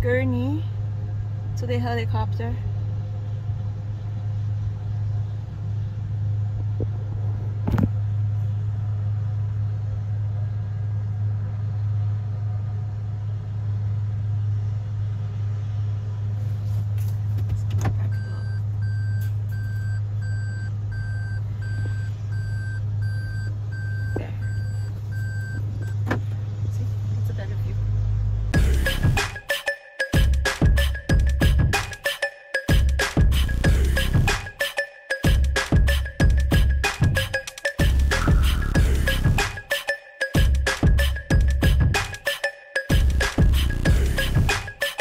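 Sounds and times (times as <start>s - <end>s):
engine humming: 0.0s - 45.0s
regular electronic beeps: 18.1s - 26.0s, 28.6s - 44.9s.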